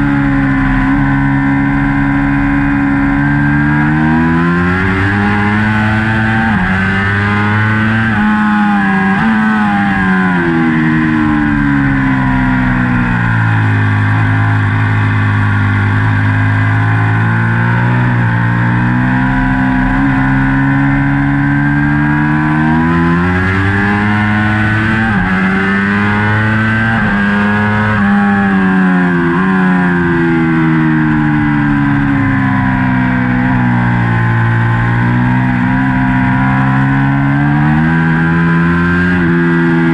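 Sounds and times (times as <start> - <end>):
race bike engine revving: 0.0 - 39.9.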